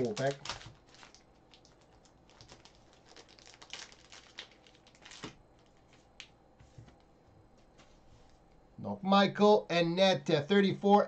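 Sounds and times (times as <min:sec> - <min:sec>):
plastic crinkling and rustling: 0:00.0 - 0:07.0.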